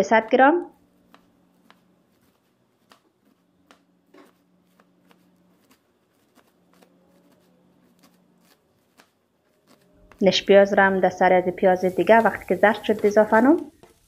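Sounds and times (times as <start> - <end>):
knife chopping on plastic board: 13.6 - 14.0.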